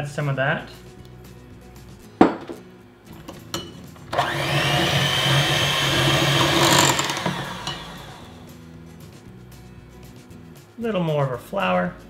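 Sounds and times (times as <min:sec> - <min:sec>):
electric hand mixer whining: 0:04.1 - 0:08.5.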